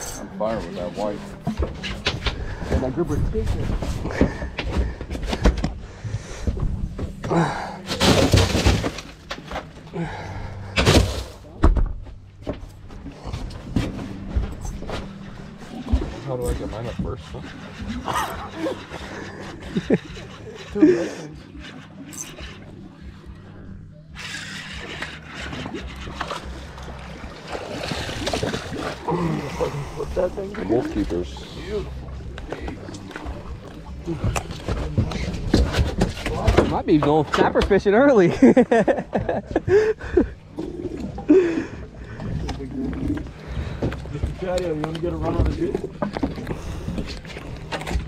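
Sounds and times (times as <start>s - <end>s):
knocks and thuds on boat: 1.4s - 9.8s, 10.7s - 18.7s, 32.3s - 40.3s, 41.8s - 48.0s
fish thrashing and splashing water: 24.2s - 36.9s.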